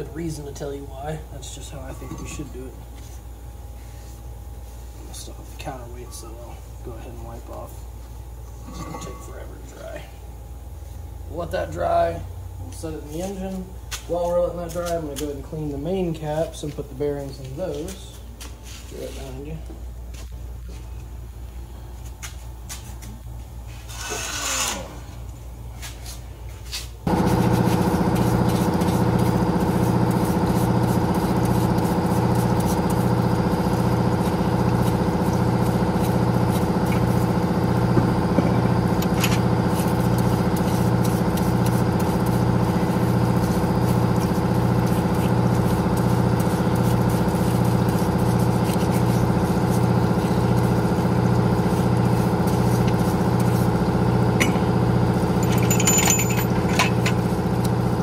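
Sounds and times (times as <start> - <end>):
motor running with low pulse: 27.0 - 58.0.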